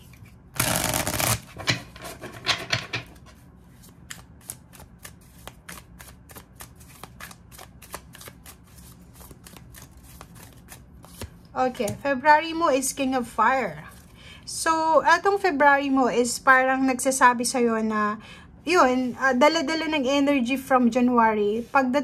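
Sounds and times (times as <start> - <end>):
cards shuffling: 0.0 - 2.4, 3.2 - 12.0.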